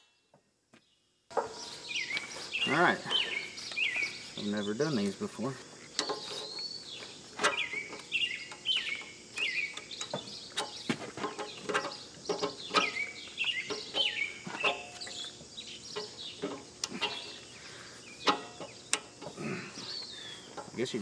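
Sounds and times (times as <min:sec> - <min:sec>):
bird chirping: 0:01.3 - 0:21.0
metal couplers clicking: 0:07.4 - 0:17.4, 0:18.2 - 0:19.4.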